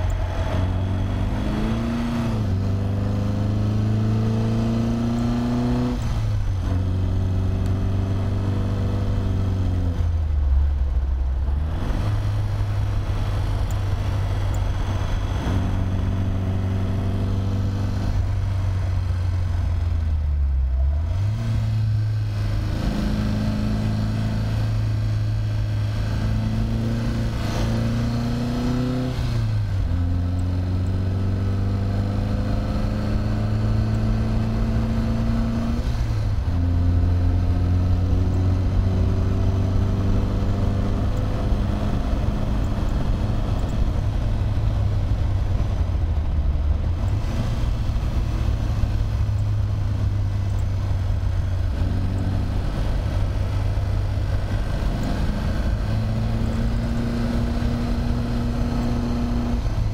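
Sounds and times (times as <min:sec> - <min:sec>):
car engine pulling hard: 0:00.0 - 0:59.9.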